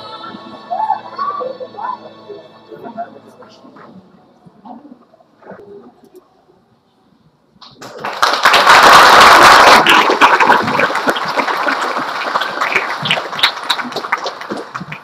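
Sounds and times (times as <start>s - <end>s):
audience applauding: 7.8s - 15.0s.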